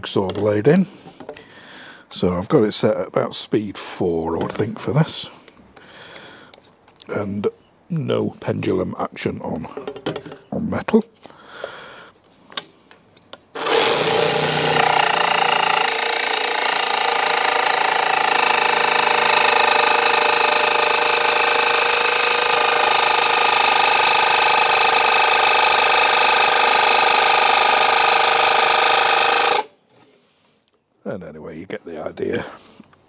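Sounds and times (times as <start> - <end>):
jigsaw cutting metal: 13.6 - 29.7.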